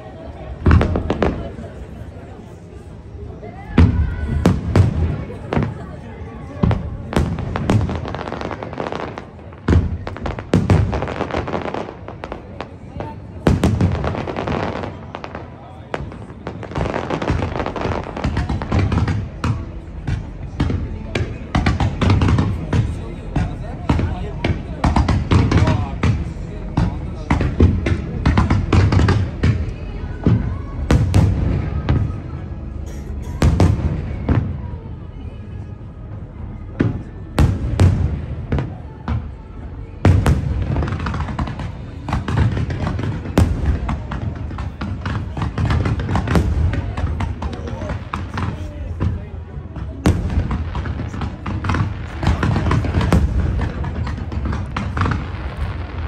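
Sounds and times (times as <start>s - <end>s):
firework bangs: 0.6s - 1.8s, 3.7s - 5.9s, 6.6s - 32.2s, 40.0s - 56.0s.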